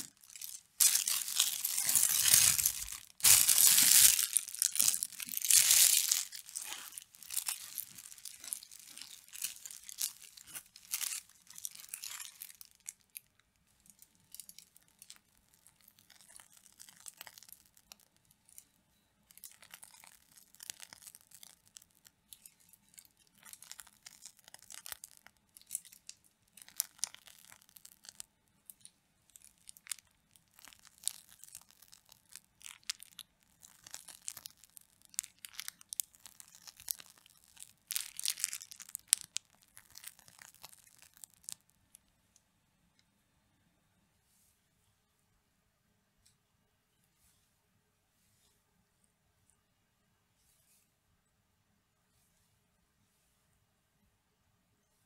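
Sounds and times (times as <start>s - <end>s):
plastic piping bag crinkling: 0.0s - 42.1s.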